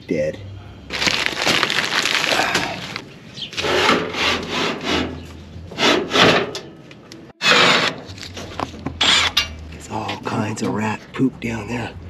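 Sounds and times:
metal drawer scraping on runners: 7.4 - 8.1.

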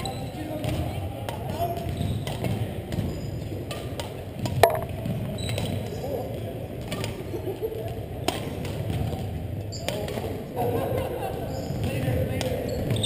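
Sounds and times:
sharp ringing knock: 4.6 - 5.0.

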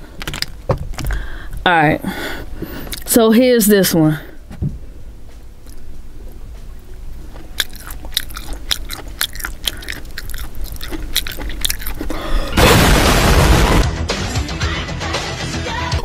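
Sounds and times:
chewing with mouth clicks: 2.8 - 3.2, 7.2 - 12.6.

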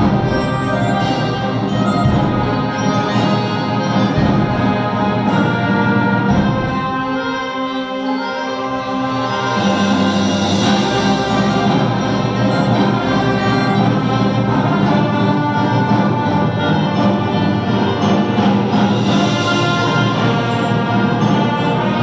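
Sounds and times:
woodwind and brass ensemble chords: 0.0 - 22.0.

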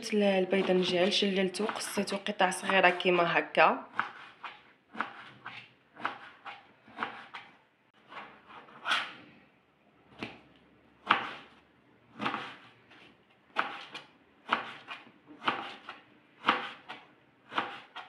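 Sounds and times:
knife chopping on cutting board: 0.6 - 3.2, 3.9 - 9.1, 11.0 - 11.6, 12.2 - 12.7, 13.5 - 18.0.

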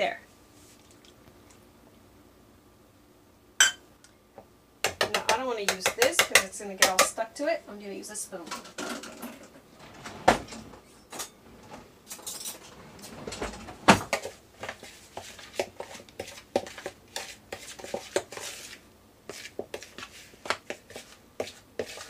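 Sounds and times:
spoon stirring dough in plastic bowl: 4.9 - 7.2, 14.1 - 22.0
metal cutlery clattering: 12.1 - 13.6.

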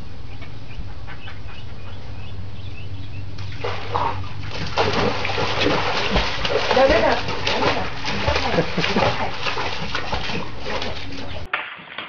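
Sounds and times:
birds chirping faintly: 0.0 - 4.5
steady low hum: 0.0 - 11.5.

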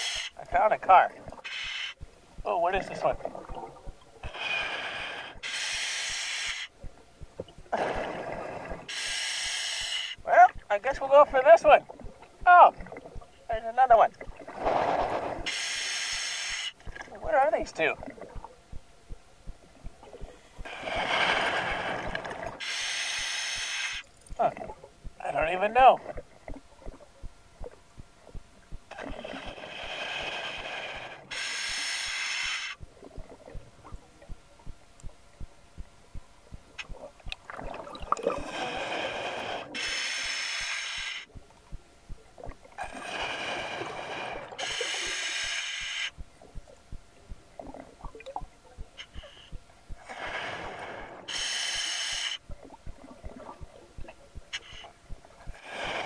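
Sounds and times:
diver breathing through regulator: 0.0 - 0.4, 1.3 - 2.0, 4.2 - 6.8, 7.7 - 10.2, 14.6 - 17.0, 20.3 - 24.1, 28.9 - 32.8, 38.1 - 41.4, 42.8 - 46.2, 49.0 - 52.5, 54.6 - 56.0
diver exhaling bubbles: 7.7 - 8.9, 37.5 - 39.9
faint clicks: 30.5 - 38.4, 52.2 - 55.5
small clicks and pops: 32.8 - 38.3.

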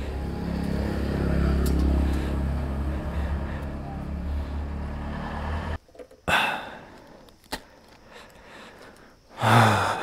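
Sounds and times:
low hum: 0.0 - 5.8
person exhaling heavily: 1.9 - 7.2, 8.2 - 10.0
person sighing: 6.2 - 7.0, 9.4 - 10.0.

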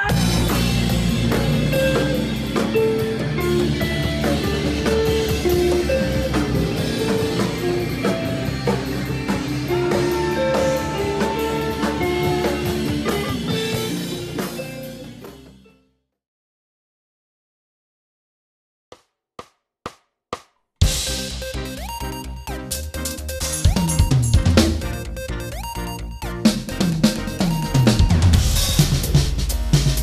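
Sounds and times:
rock band playing: 0.0 - 15.7, 20.8 - 30.0.

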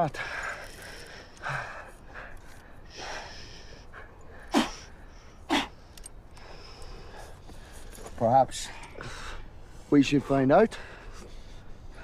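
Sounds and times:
men breathing heavily: 0.0 - 12.0
sharp forceful exhalations: 4.4 - 5.8.

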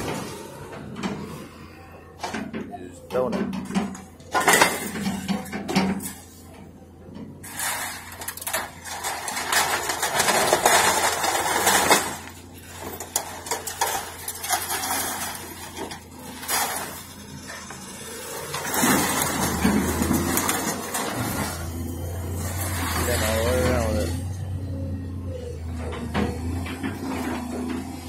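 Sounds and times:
low hum: 0.1 - 28.0
scrap metal clattering: 3.5 - 24.5.

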